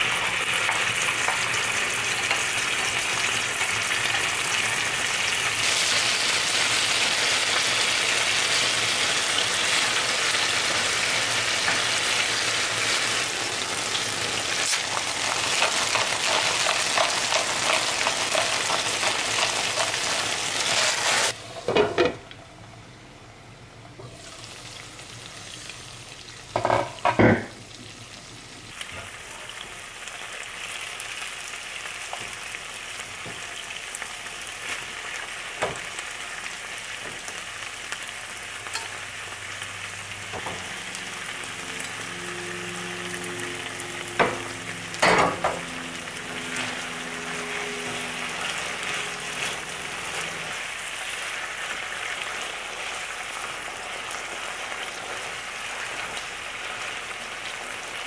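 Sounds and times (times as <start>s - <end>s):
chicken sizzling in a frying pan: 0.0s - 58.0s
cookware clanking: 45.0s - 45.7s.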